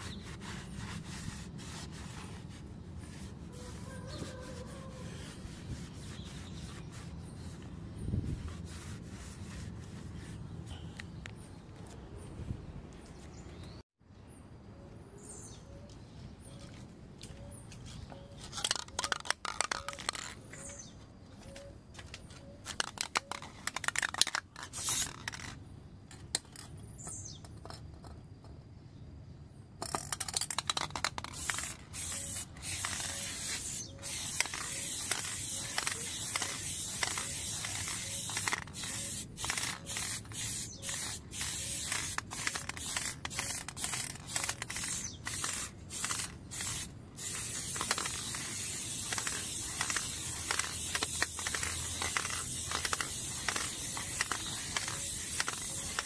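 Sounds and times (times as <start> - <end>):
spray paint can hissing: 22.7 - 25.6, 29.9 - 56.0.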